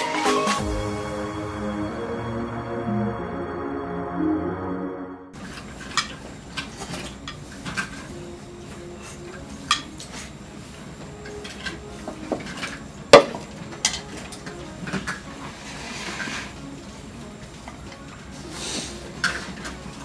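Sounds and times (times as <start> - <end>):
bowls and spoons clinking: 5.4 - 8.0, 9.3 - 10.2.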